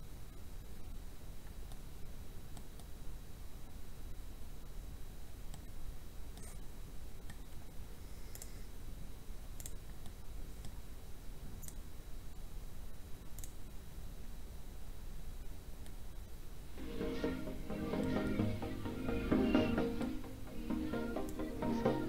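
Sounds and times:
computer mouse clicks: 1.4s - 1.9s, 2.5s - 3.0s, 5.5s - 5.7s, 6.3s - 8.7s, 9.6s - 10.8s, 11.5s - 11.9s, 13.2s - 13.7s, 15.8s - 16.0s.

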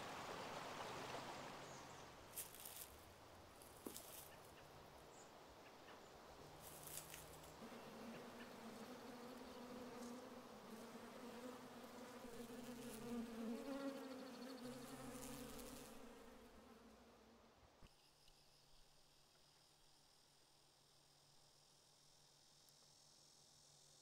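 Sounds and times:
wasps buzzing: 7.6s - 16.9s.

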